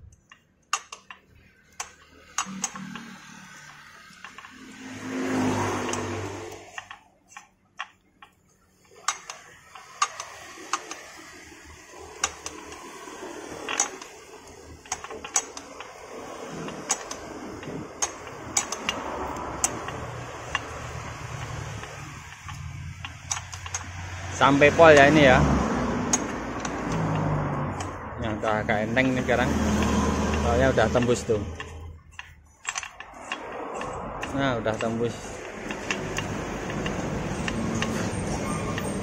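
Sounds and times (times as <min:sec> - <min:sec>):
sharp metallic clicks: 0:00.0 - 0:39.0
thread tap scraping: 0:14.8 - 0:28.4.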